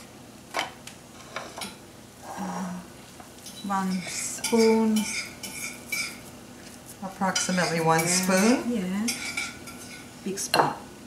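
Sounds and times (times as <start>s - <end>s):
spatula scraping ceramic dishes: 3.5s - 6.2s.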